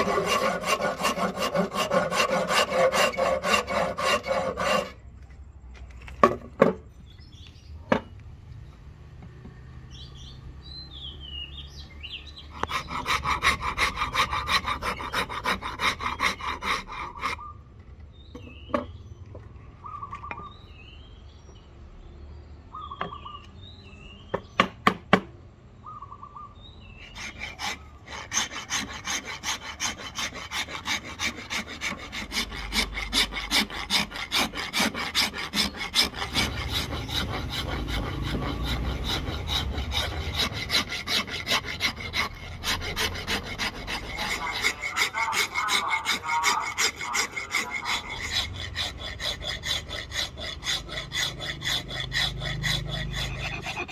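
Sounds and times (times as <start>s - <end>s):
rasp scraping wood: 0.0s - 5.2s, 12.5s - 17.4s, 27.0s - 53.9s
birds chirping: 9.5s - 24.8s, 25.8s - 29.1s.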